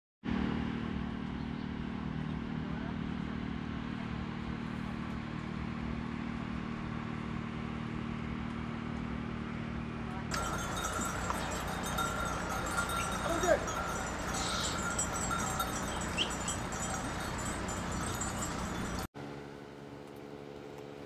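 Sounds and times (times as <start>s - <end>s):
motor humming: 10.3s - 19.1s.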